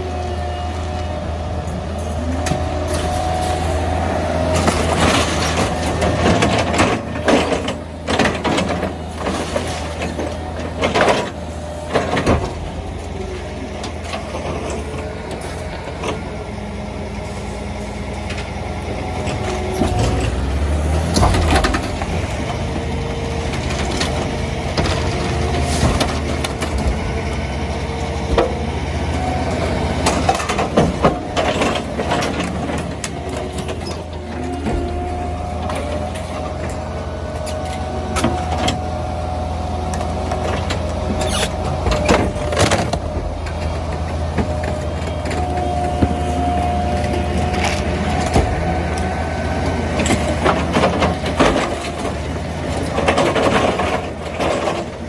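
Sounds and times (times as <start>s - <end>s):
diesel engines running: 0.0s - 55.0s
hydraulic compactor whine: 0.0s - 55.0s
rubbish crashing into truck hopper: 19.8s - 22.8s.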